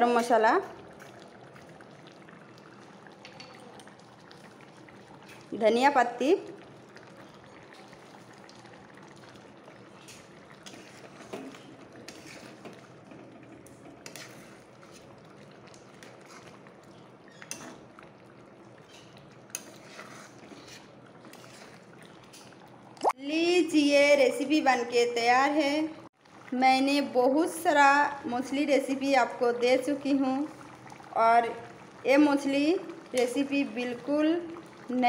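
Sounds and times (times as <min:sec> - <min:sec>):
curry bubbling in metal pan: 0:00.0 - 0:35.0
spatula scraping a pan: 0:10.0 - 0:12.8, 0:13.9 - 0:15.2, 0:17.4 - 0:17.9, 0:18.8 - 0:22.6.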